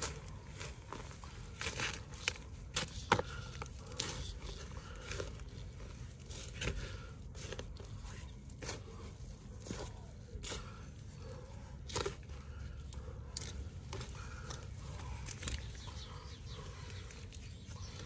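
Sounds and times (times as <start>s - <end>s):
hands digging through soil and twigs: 0.0s - 18.0s.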